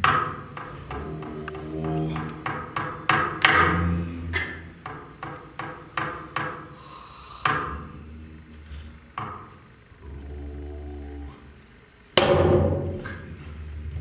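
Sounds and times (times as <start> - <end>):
sticks knocking percussion objects: 0.0 - 6.8, 7.4 - 8.0, 8.7 - 9.6.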